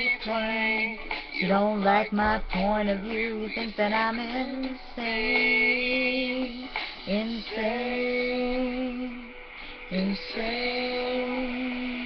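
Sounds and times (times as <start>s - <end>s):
recorded music: 0.0s - 12.0s.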